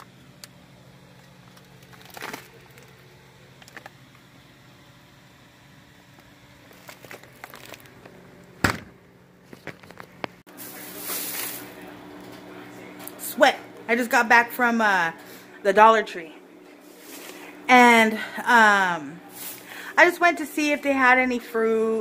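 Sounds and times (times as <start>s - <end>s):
freezer cases humming: 0.0s - 22.0s.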